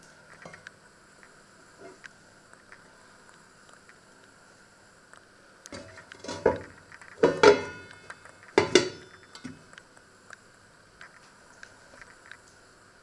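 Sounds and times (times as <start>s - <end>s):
pot lid clattering on pan: 7.2s - 8.0s, 8.6s - 9.5s.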